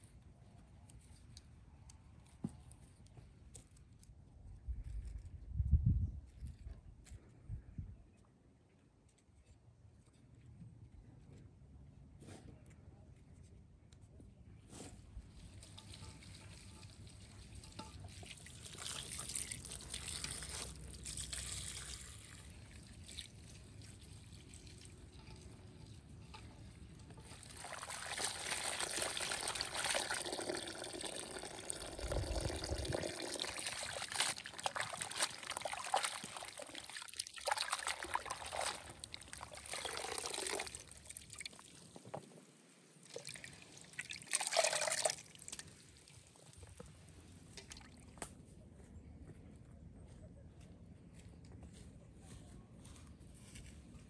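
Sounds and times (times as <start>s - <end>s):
water trickling into metal pot: 15.4s - 41.9s, 43.1s - 46.8s
hands washing in water: 32.4s - 41.6s.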